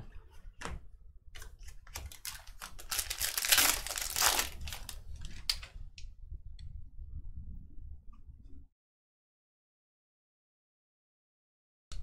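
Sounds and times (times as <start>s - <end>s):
foil wrapper crinkling and tearing: 1.6s - 5.6s.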